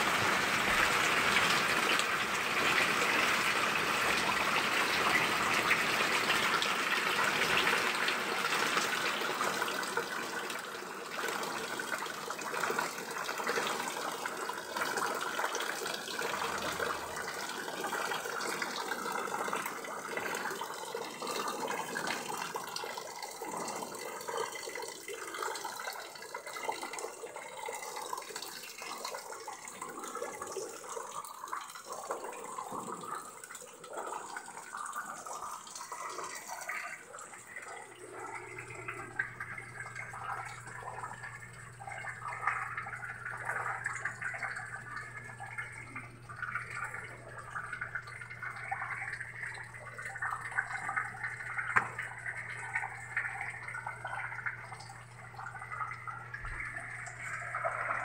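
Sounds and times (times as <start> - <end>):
rainwater pouring into bucket: 0.0 - 58.0
water splashing and dripping: 31.1 - 58.0
low steady hum: 36.6 - 58.0.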